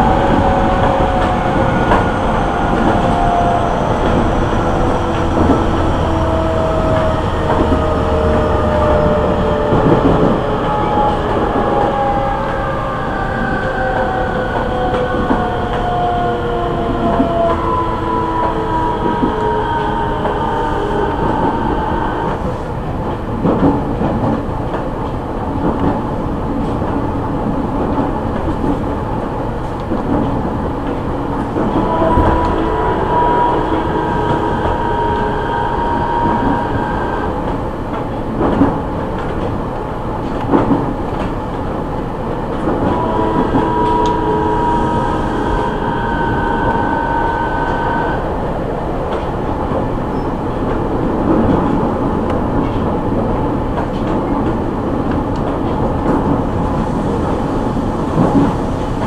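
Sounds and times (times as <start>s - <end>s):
wheel and rail rumble: 0.0s - 59.0s.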